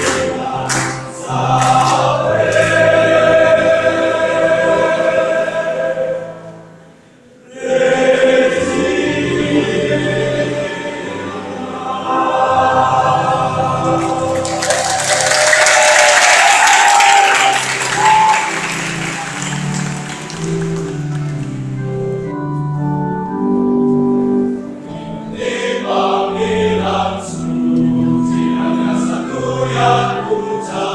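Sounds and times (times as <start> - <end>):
applause: 0.0 - 1.0, 1.6 - 2.8, 14.0 - 21.6
male choir singing: 0.0 - 6.6, 7.4 - 19.9, 25.3 - 30.9.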